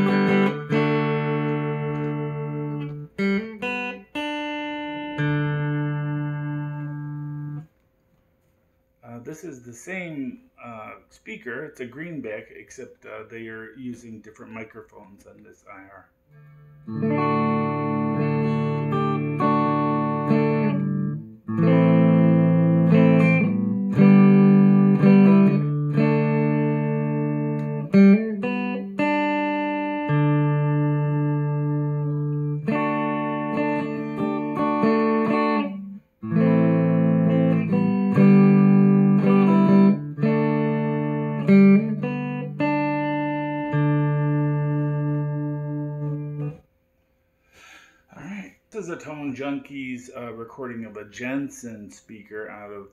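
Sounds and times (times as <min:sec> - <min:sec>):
clean electric guitar chords: 0:00.0 - 0:07.8, 0:16.3 - 0:46.6.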